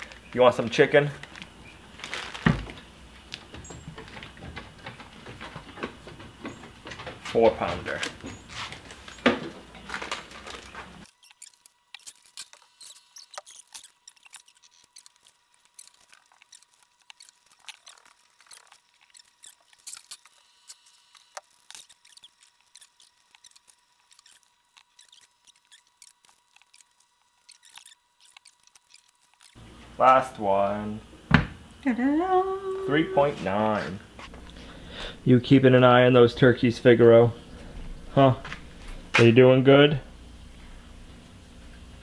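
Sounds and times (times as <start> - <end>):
plastic bags crinkling: 0.0 - 3.5, 7.9 - 29.6
faint high hum: 0.0 - 42.0.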